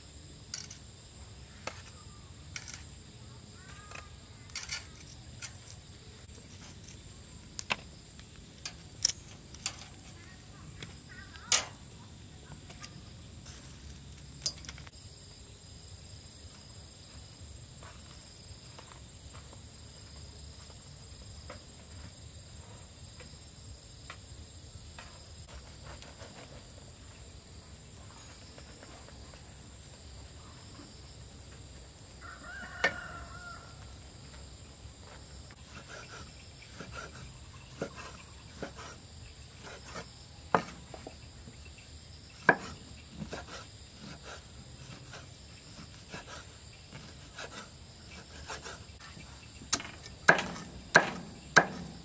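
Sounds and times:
sharp knocks: 49.7s - 52.0s.

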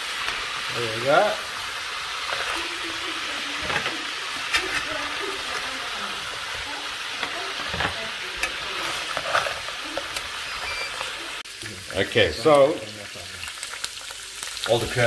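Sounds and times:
crab sizzling in hot oil: 0.0s - 15.0s
metal spoon scraping pot: 7.2s - 11.0s.

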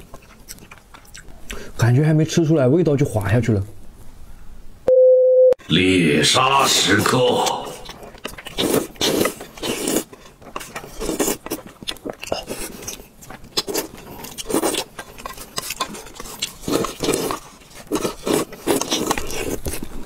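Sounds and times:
chewing: 0.0s - 1.6s, 7.4s - 20.0s
slurping noodles: 6.6s - 20.0s.

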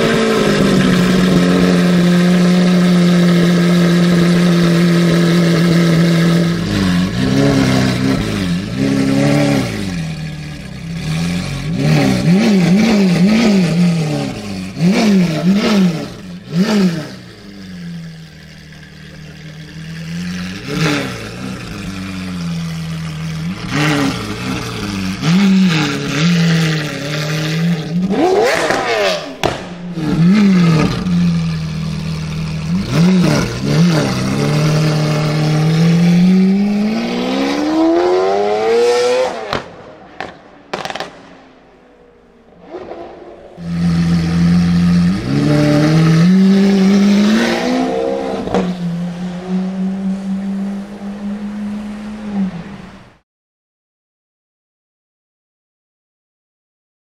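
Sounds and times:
sports car engine revving: 0.0s - 53.1s
exhaust pops: 27.9s - 35.3s, 39.3s - 44.6s.

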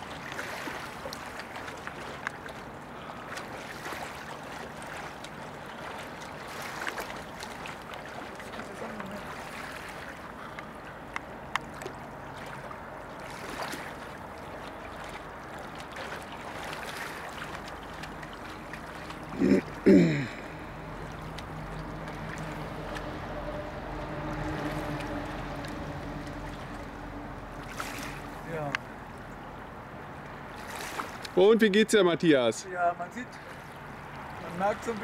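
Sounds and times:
swimmer splashing: 0.0s - 29.6s, 30.4s - 35.0s
river water washing: 0.0s - 35.0s.

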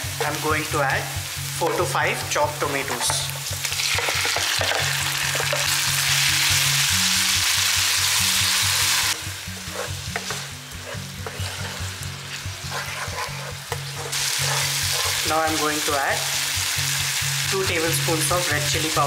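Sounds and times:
onions sizzling in hot oil: 0.0s - 19.0s
spatula scraping and tapping pan: 2.8s - 5.7s, 9.6s - 15.2s.

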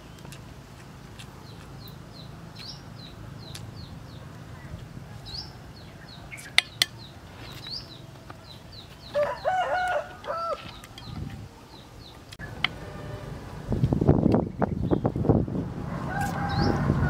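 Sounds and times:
small birds chirping: 0.0s - 13.1s, 14.1s - 15.6s
rooster crowing: 9.1s - 10.8s, 15.9s - 17.0s.

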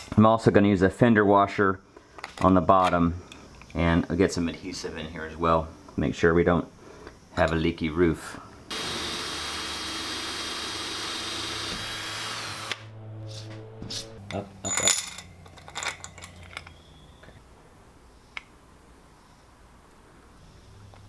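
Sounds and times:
cordless drill whining: 8.7s - 12.9s
metallic clicks and clinks: 14.3s - 17.4s.

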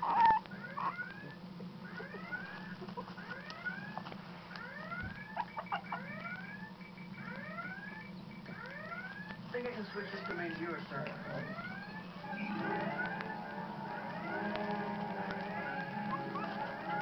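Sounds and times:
puppy squeaking: 0.0s - 1.2s, 5.2s - 6.4s, 15.9s - 17.0s.

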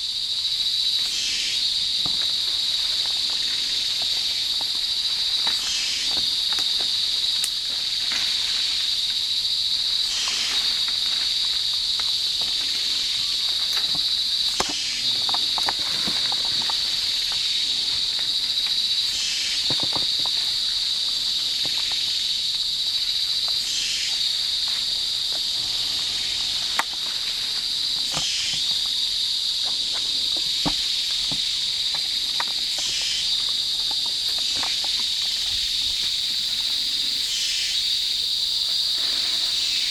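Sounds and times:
insects buzzing drone: 0.0s - 39.9s
twigs and leaves snapping: 2.0s - 9.2s, 10.0s - 18.9s, 26.6s - 29.0s, 29.6s - 36.2s.

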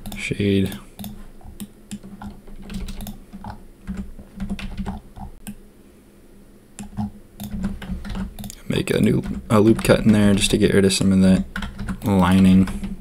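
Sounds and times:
computer keyboard clicks: 1.0s - 5.6s, 6.8s - 8.6s.

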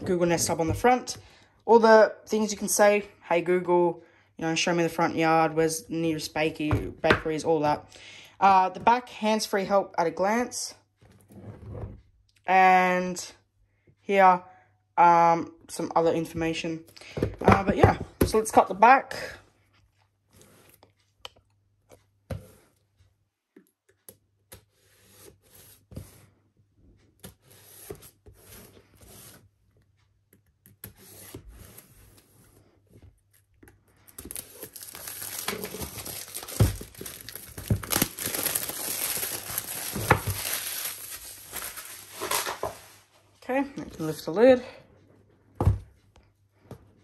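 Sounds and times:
cardboard tearing and crinkling: 34.2s - 42.9s.

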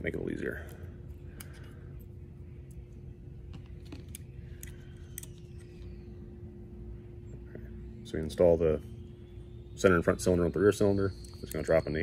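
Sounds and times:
faint steady hum: 0.0s - 12.0s
small metal parts clicking: 3.8s - 5.9s.

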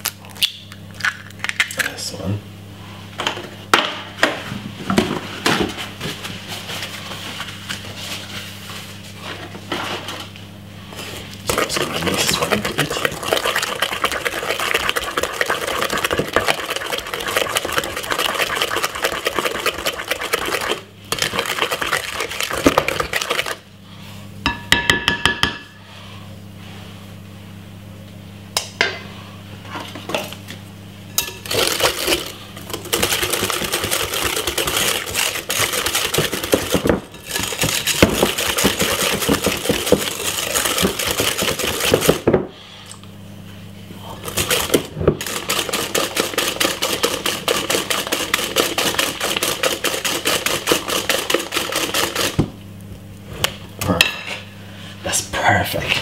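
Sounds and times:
utensil beating batter in glass bowl: 11.5s - 23.6s, 31.4s - 42.3s, 44.2s - 52.5s.

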